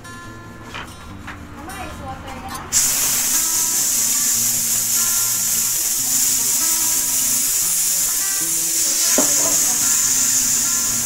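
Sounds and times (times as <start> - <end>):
quiet background music: 0.0 - 11.0
loud hiss of rushing gas: 2.7 - 11.0.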